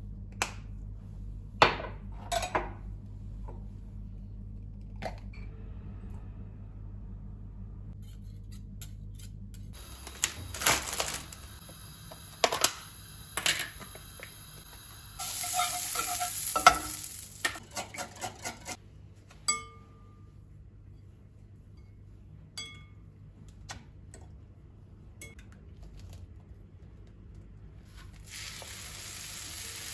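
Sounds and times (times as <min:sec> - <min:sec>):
margarine sizzling in frying pan: 0:09.8 - 0:17.6, 0:28.2 - 0:29.9.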